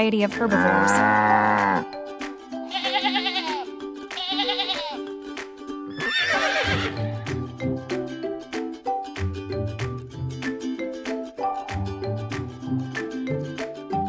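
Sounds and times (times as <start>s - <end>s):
light background music: 0.0s - 14.0s
sheep bleating: 0.5s - 1.9s, 2.7s - 5.0s
cow mooing: 0.6s - 1.9s
horse whinnying: 5.9s - 7.0s.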